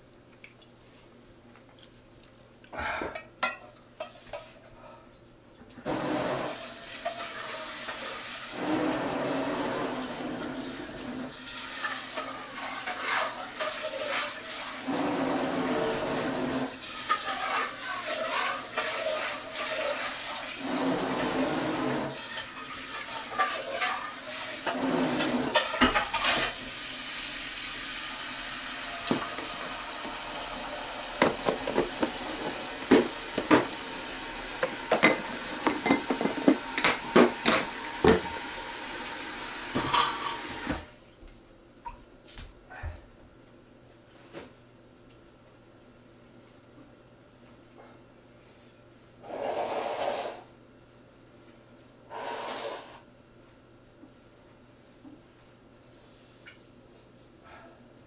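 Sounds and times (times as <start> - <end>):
kitchen tap running into sink: 5.8 - 40.9
dishes clinking: 23.2 - 26.6, 34.6 - 38.2, 39.8 - 40.5.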